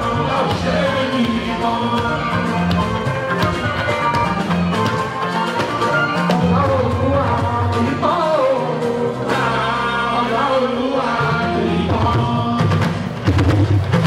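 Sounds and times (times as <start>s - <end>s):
man singing into a microphone: 0.0s - 2.5s, 6.3s - 13.0s
live band with electric guitars: 0.0s - 14.0s.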